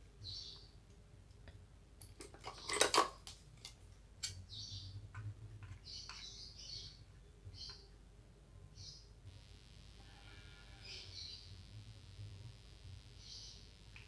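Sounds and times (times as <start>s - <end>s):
high chirps: 9.3s - 14.0s.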